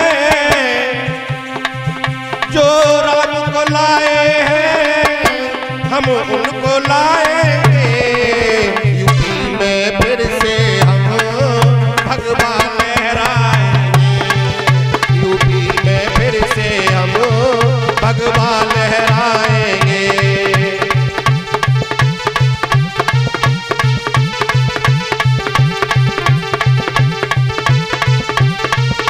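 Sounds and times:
hand drums beating: 0.0s - 29.0s
wavering melody line: 0.0s - 29.0s.

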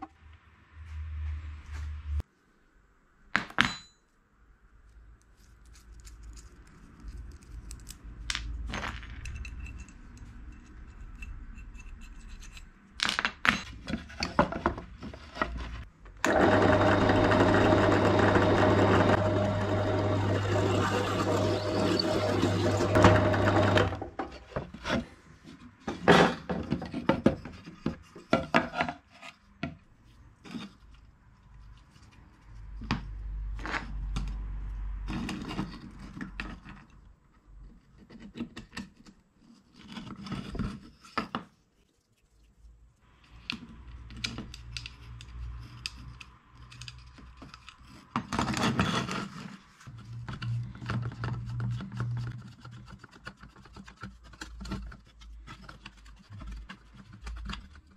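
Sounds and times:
wood and tools knocking: 13.0s - 25.1s, 25.8s - 29.0s
power tool running: 16.2s - 24.1s.

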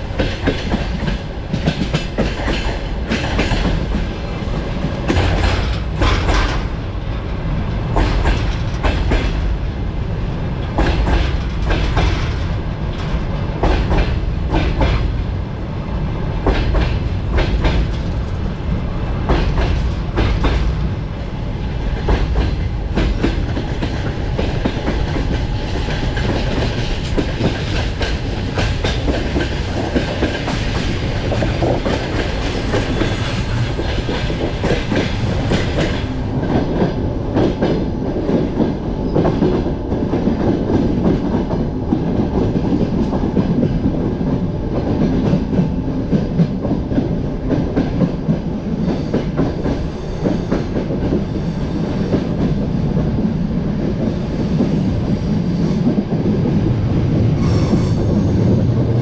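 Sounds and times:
train wheels clattering over rail joints: 0.0s - 9.4s, 10.6s - 15.1s, 16.4s - 18.5s, 19.2s - 20.9s, 21.9s - 53.2s
train coach rumble and rattle: 0.0s - 59.0s.

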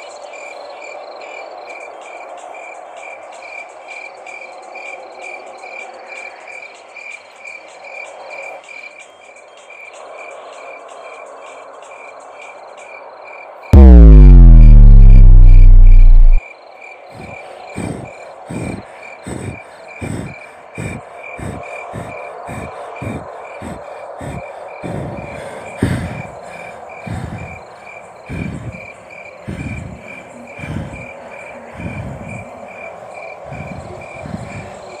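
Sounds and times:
low thuds: 13.8s - 16.4s
crickets chirping: 18.5s - 35.0s.

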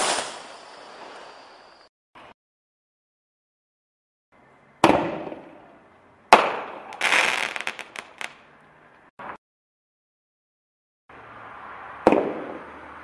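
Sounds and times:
firework burst: 0.0s - 1.8s
firework crackling: 0.0s - 1.9s, 6.3s - 8.4s.

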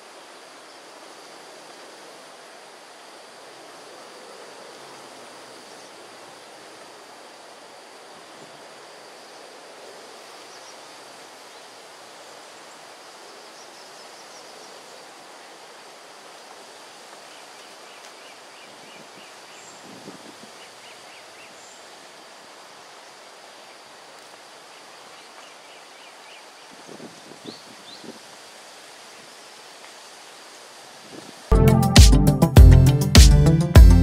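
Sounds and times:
steady forest hiss: 0.0s - 34.0s
thin high tone: 31.5s - 34.0s.

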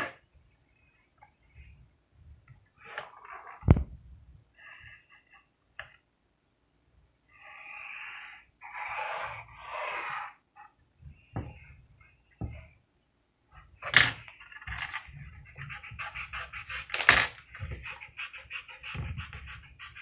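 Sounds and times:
pencil scratching on paper: 7.4s - 10.4s, 14.4s - 20.0s.

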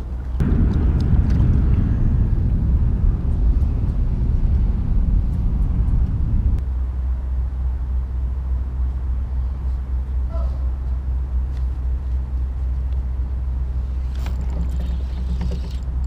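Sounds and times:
wind buffeting microphone: 0.0s - 6.6s.

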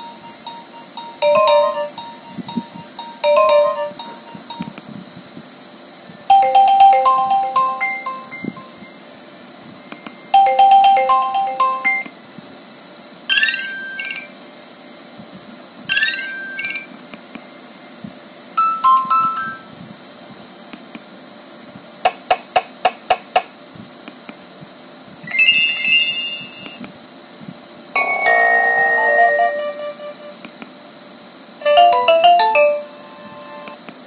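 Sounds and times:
phone ringtone melodies: 0.0s - 4.8s, 6.3s - 8.9s, 10.3s - 12.1s, 18.6s - 19.7s, 28.0s - 30.2s, 31.6s - 33.7s.

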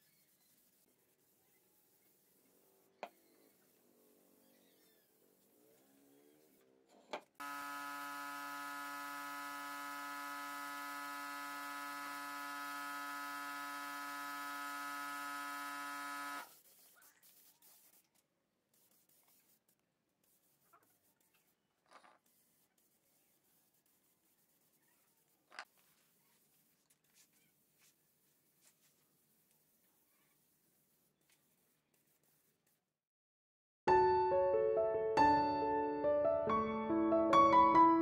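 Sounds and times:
spray rig buzzing hum and hiss: 7.4s - 18.1s.

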